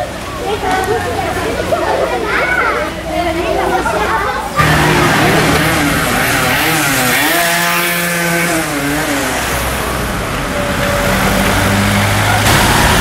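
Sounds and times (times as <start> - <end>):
car engine running low: 4.6 - 7.8, 12.3 - 13.0
motor scooter passing by: 4.6 - 13.0.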